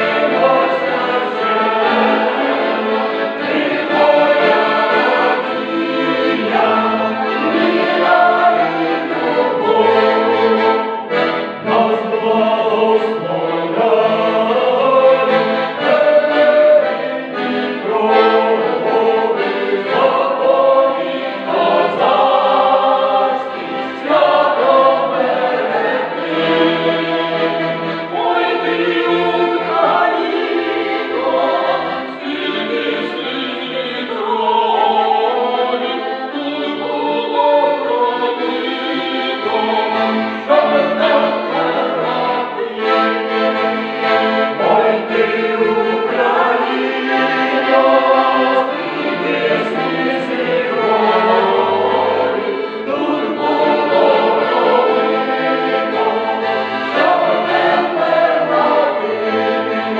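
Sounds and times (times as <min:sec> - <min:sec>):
accordion: 0:00.0 - 0:59.9
mixed choir singing: 0:00.0 - 0:59.9.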